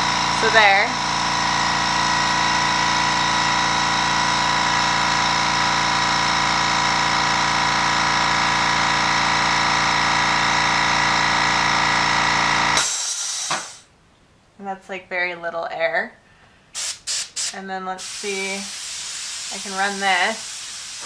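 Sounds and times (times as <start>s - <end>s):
air compressor running: 0.0s - 13.9s, 16.8s - 21.0s
hiss of released air: 12.8s - 13.9s, 16.8s - 21.0s.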